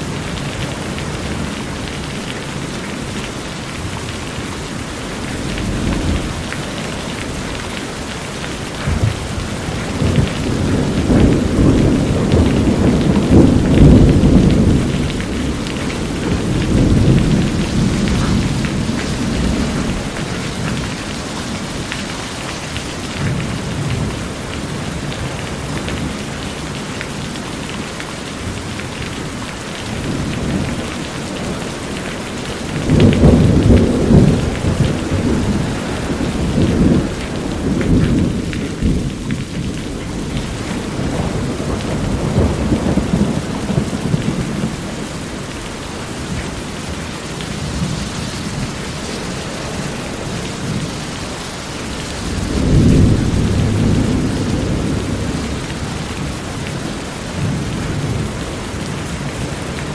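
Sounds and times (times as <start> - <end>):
thunder rumbling: 0.0 - 27.3, 28.4 - 59.9
heavy rain on a roof: 0.0 - 59.9.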